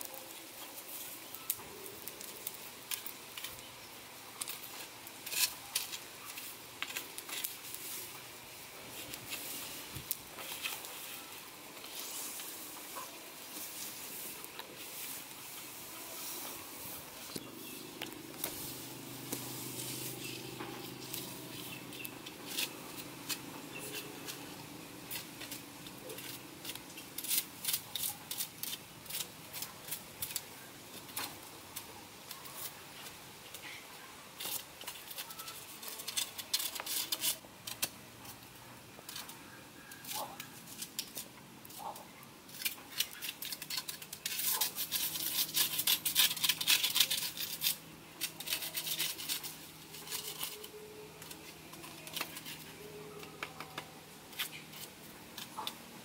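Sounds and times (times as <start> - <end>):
embers crackling and clicking: 0.0 - 56.0
bamboo blade scraping fish skin: 25.1 - 30.4, 34.4 - 37.9, 42.5 - 52.8.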